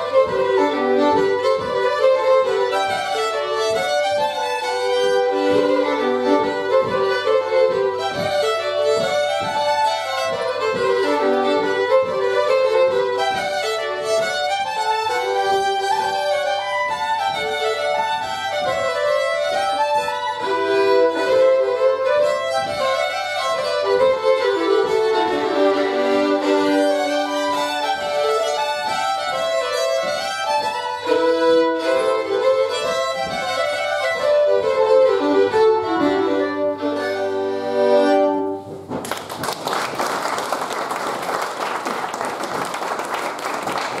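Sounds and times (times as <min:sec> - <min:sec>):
fiddles playing folk tune: 0:00.0 - 0:39.0
audience applause: 0:39.0 - 0:44.0.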